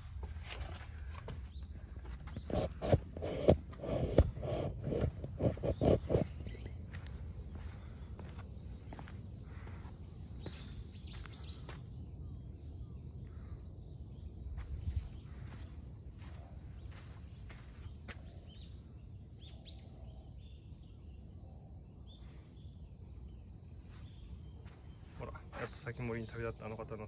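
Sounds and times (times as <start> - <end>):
insects trilling: 0.0 - 27.0
bird chirps: 10.4 - 13.6, 16.8 - 21.3.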